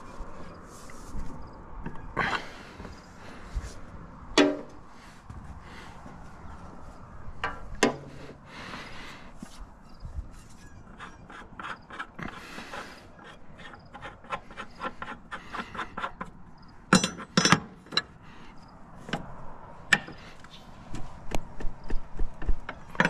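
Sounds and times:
metal clanks: 0:04.4 - 0:04.8, 0:10.4 - 0:18.2, 0:22.6 - 0:23.0.

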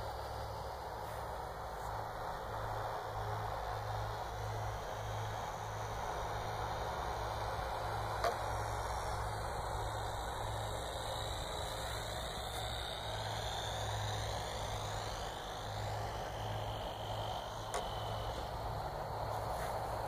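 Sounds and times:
low background rumble: 0:00.0 - 0:20.0
model plane electric motor whine: 0:00.0 - 0:20.0.

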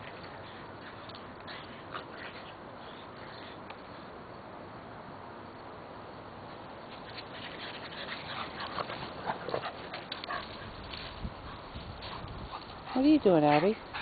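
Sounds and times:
dog panting: 0:11.4 - 0:14.0.

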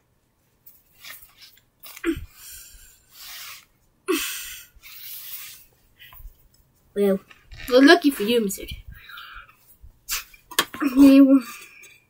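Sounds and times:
hissing rush of breath: 0:02.2 - 0:05.7.

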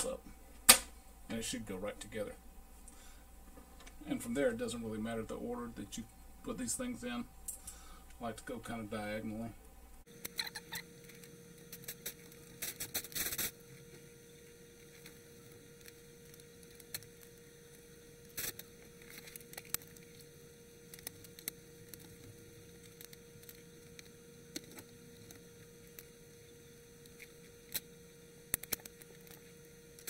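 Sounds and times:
faint steady hum: 0:00.0 - 0:30.0.

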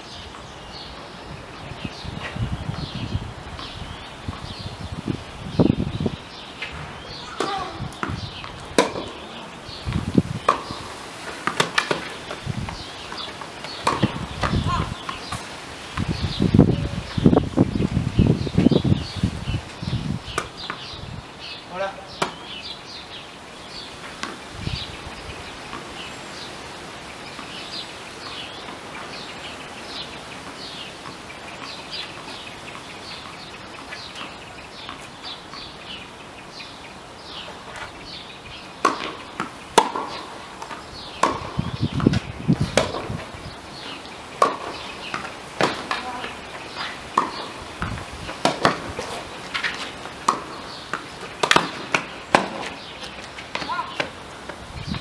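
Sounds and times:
tennis ball bounces: 0:06.6 - 0:15.4, 0:20.3 - 0:20.9, 0:22.1 - 0:22.6, 0:24.0 - 0:24.5, 0:38.8 - 0:54.2
tennis racket strikes: 0:08.8 - 0:09.2, 0:38.8 - 0:41.6, 0:46.7 - 0:47.6, 0:48.4 - 0:52.8.

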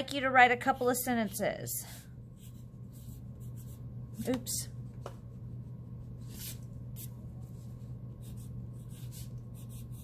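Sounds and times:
steady low hum: 0:00.0 - 0:10.0
pencil scratching on paper: 0:00.6 - 0:03.9, 0:06.0 - 0:10.0.

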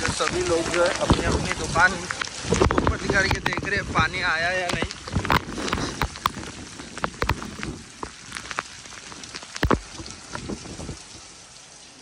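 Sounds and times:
heavy rain splashing on street: 0:00.0 - 0:05.6
raindrops hitting near microphone: 0:00.0 - 0:12.0.

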